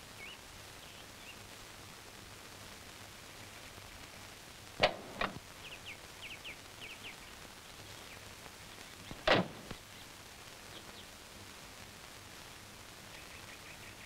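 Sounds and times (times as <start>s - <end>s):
bird chirps: 0.2s - 1.4s, 5.6s - 10.1s, 13.1s - 14.0s
sharp clicks: 4.8s - 5.4s
car door shutting: 9.2s - 9.7s.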